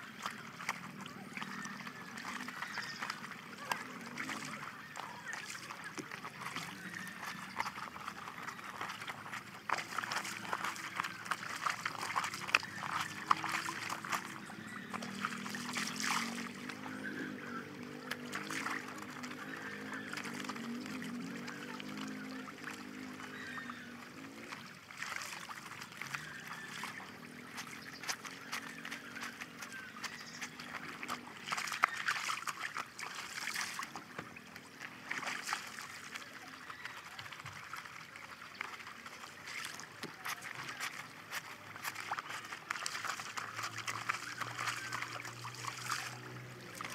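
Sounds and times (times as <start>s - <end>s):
water splashing and trickling: 0.0s - 46.9s
garment scrubbed by hand: 39.5s - 46.9s.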